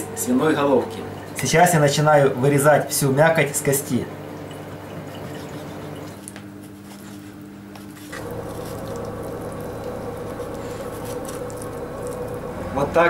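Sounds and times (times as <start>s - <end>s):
steady low hum: 0.0s - 13.0s
knife cutting wet meat: 5.2s - 12.3s.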